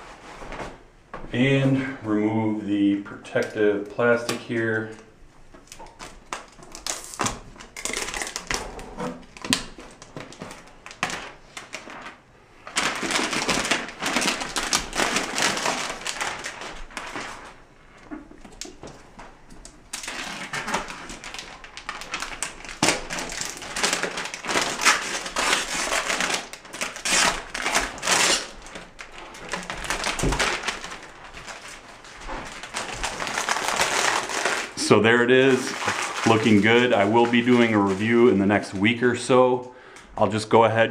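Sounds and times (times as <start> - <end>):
plastic film peeling and crinkling: 3.2 - 39.0.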